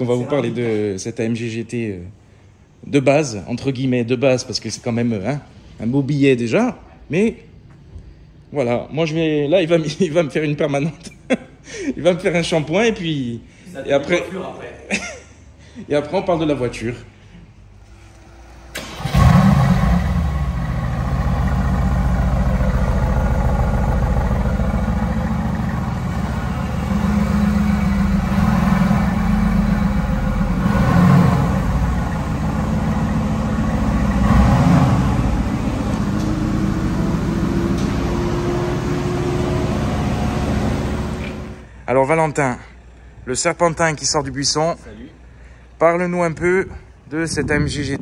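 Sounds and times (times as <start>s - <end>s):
car engine starting and idling: 17.6s - 44.6s
engine throttle blips: 17.9s - 41.7s.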